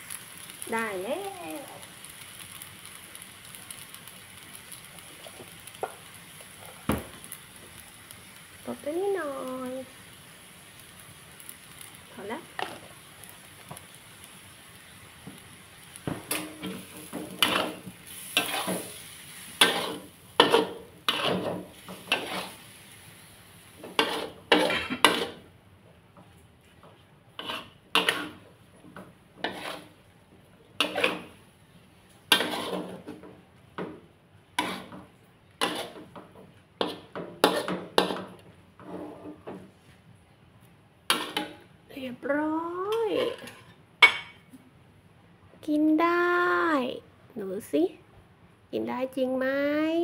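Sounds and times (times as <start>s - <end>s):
metal spatula scraping a wok: 16.2s - 22.8s, 23.8s - 25.4s, 27.4s - 28.4s, 29.4s - 30.0s, 30.8s - 31.4s, 32.3s - 33.3s, 34.6s - 39.7s, 41.1s - 41.7s, 42.9s - 44.2s.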